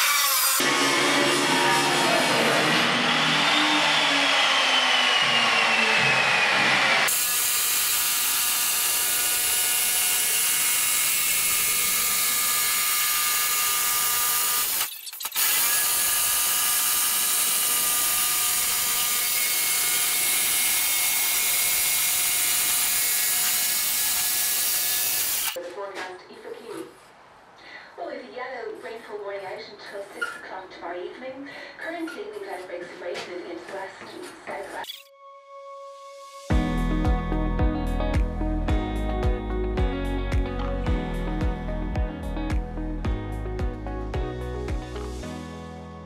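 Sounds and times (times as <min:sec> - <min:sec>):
jigsaw cutting steel: 0:00.0 - 0:25.6
slowly falling tone: 0:00.6 - 0:07.1.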